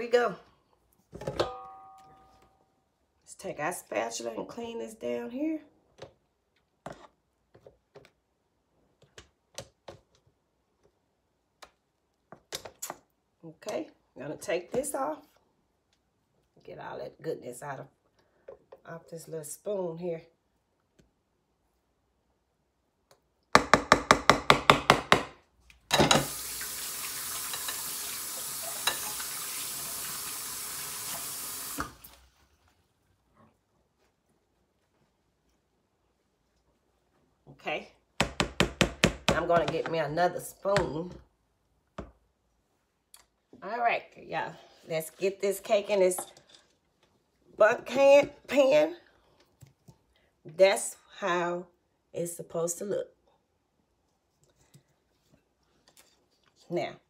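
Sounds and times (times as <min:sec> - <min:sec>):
kitchen tap running: 0:26.0 - 0:32.2.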